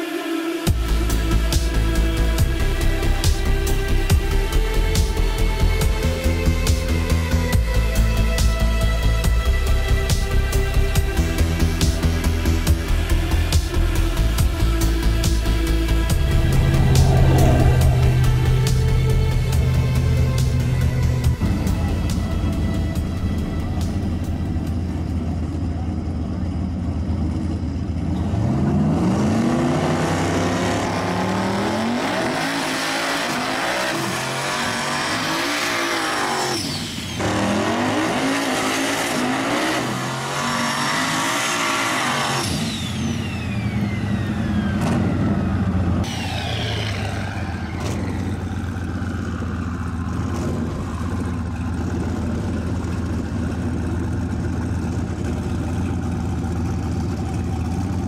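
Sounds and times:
drag car engines revving: 0.1s - 58.0s.

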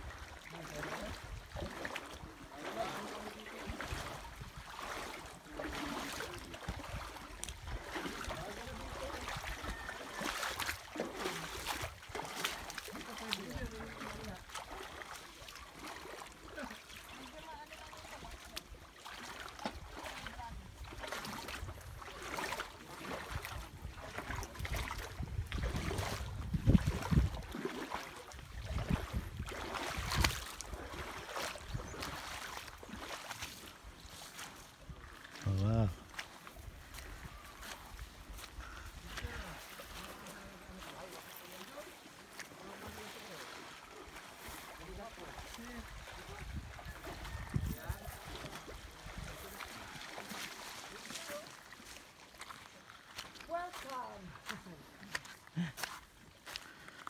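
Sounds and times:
seawater sloshing around wading legs: 0.0s - 57.0s
small waves washing on shore: 0.0s - 57.0s
wind on microphone: 23.6s - 27.6s, 28.4s - 30.8s, 46.2s - 49.4s.

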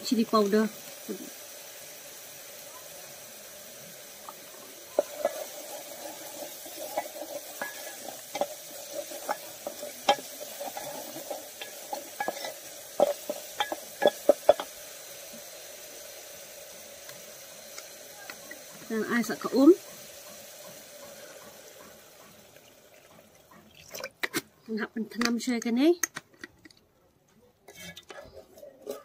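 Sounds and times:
paste sizzling in oil: 0.0s - 24.6s, 27.7s - 29.0s
wooden spatula scraping a pot: 4.9s - 14.7s, 27.7s - 29.0s.

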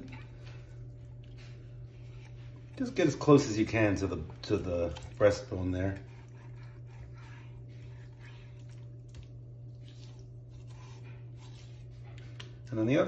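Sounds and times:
steady low hum: 0.0s - 13.0s
knife slicing raw meat: 3.8s - 12.5s.

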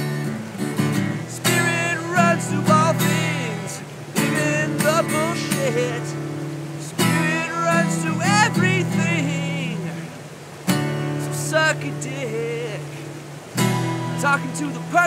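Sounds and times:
acoustic guitar strumming chords: 0.0s - 15.0s
man's wordless singing: 1.3s - 13.2s, 14.1s - 15.0s.

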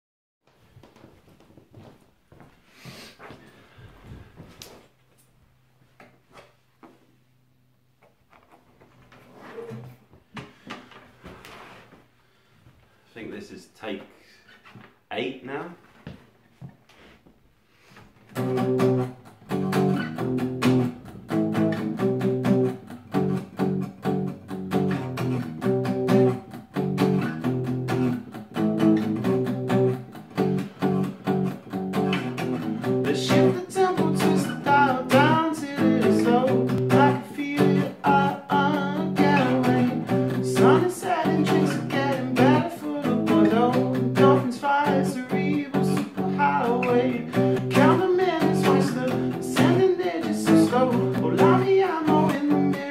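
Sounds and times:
acoustic guitar strumming chords: 18.3s - 52.9s
man singing: 33.0s - 52.9s.

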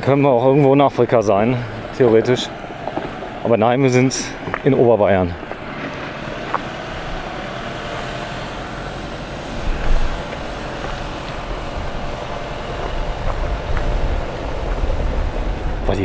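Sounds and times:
diesel truck engine driving on gravel: 0.0s - 16.0s.

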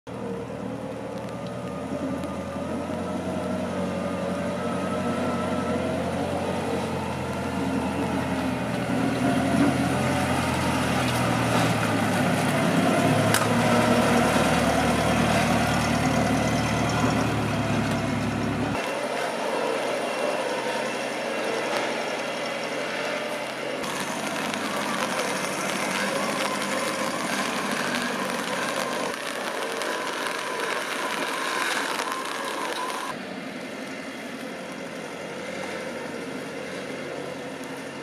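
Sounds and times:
utility truck motor hum: 0.1s - 38.0s.

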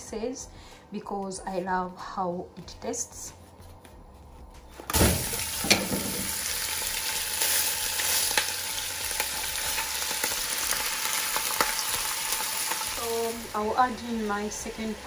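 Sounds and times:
meat sizzling in oil: 4.9s - 15.0s.

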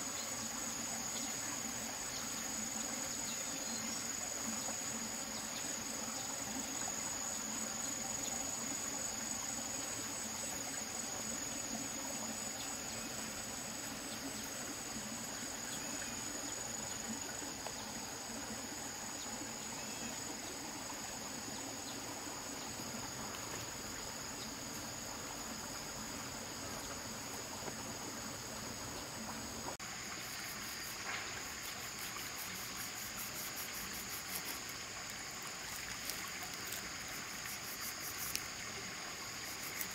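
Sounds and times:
insects buzzing: 0.0s - 39.9s
stream water flowing: 0.0s - 39.9s.

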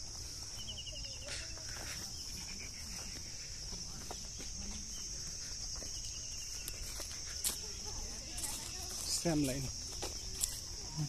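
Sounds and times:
footsteps on dirt path: 0.0s - 11.0s
insects droning: 0.0s - 11.0s.

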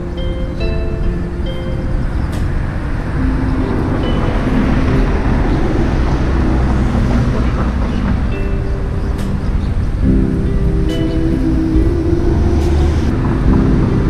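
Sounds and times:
background music: 0.0s - 14.0s
motorcycle road and wind rumble: 0.0s - 14.0s.

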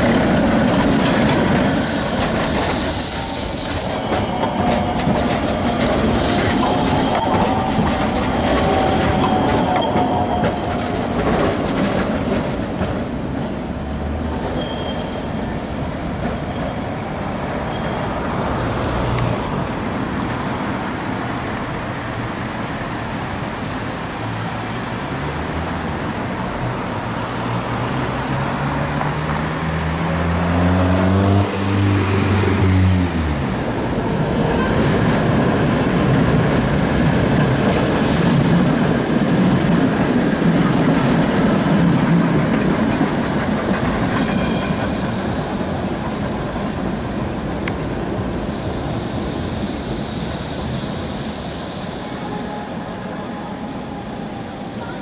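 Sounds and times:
tram rumbling past on rails: 0.0s - 55.0s
tram motors whining: 0.3s - 15.6s.

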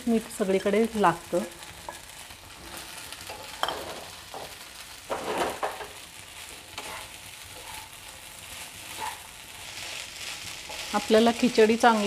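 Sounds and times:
food sizzling in oil: 0.0s - 12.0s
spoon scraping a pan: 1.7s - 11.1s.

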